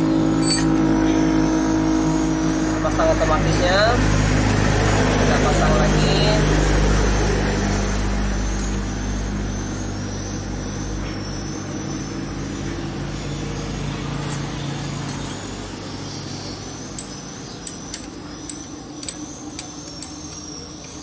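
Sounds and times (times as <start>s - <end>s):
vehicle engine humming: 0.0s - 21.0s
light high tinkling tones: 0.3s - 1.1s, 14.1s - 21.0s
metallic clinks of tools: 0.4s - 0.8s, 14.2s - 15.6s, 16.9s - 21.0s.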